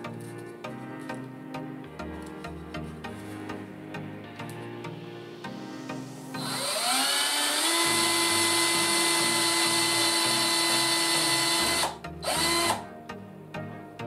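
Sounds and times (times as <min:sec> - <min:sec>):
cordless drill boring into wood: 0:06.4 - 0:12.8.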